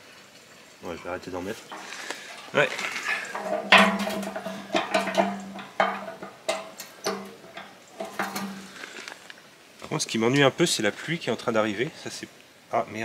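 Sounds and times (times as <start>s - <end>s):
metal jerrycan clanking: 1.6s - 9.2s.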